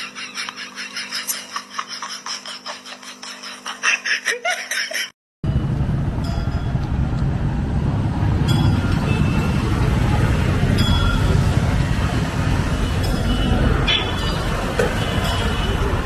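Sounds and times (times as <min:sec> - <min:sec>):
sharp clicks and squeaks: 0:00.0 - 0:01.7
street traffic rumble: 0:05.4 - 0:16.0.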